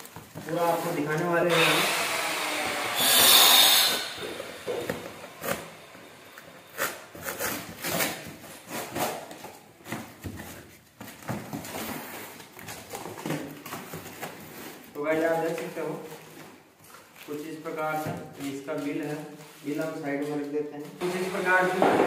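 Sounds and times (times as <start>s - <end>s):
cardboard rustling and scraping: 0.0s - 1.3s, 6.7s - 20.4s
packing tape ripped off: 1.5s - 9.4s.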